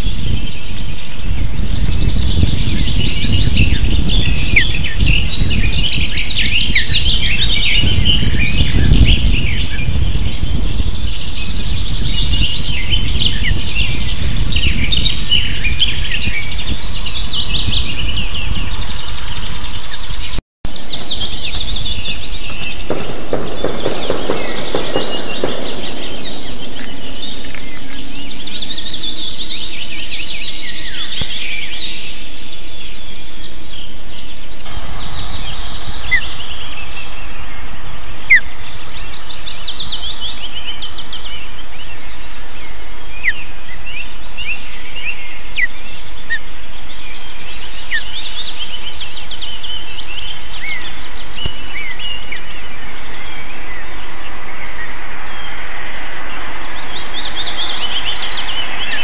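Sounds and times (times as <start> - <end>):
birds chirping: 0.0 - 59.0
loud steady hiss: 18.0 - 59.0.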